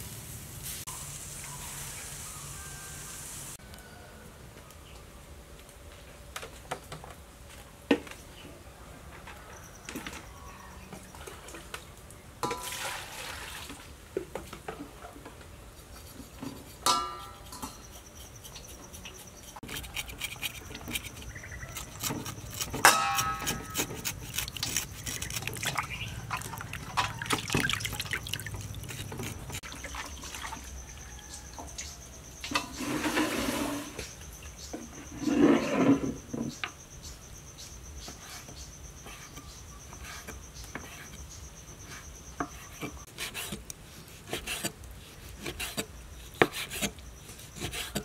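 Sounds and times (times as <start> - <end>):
water splashing: 12.4 - 14.0, 25.3 - 30.7
knife scraping: 15.8 - 29.7, 32.5 - 34.2, 35.0 - 36.3, 38.0 - 48.0
insect whine: 28.0 - 43.1.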